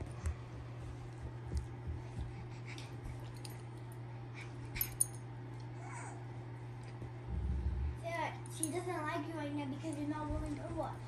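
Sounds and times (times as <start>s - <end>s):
dogs scuffling on carpet: 0.0s - 4.8s, 9.8s - 11.0s
steady low hum: 0.0s - 11.0s.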